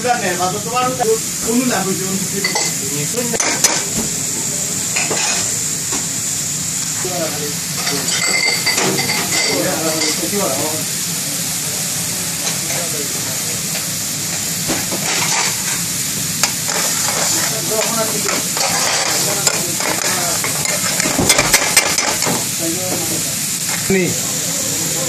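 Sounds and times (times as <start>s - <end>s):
sauce bubbling and sizzling in pan: 0.2s - 25.0s
metal spoon scraping pan: 16.7s - 21.1s.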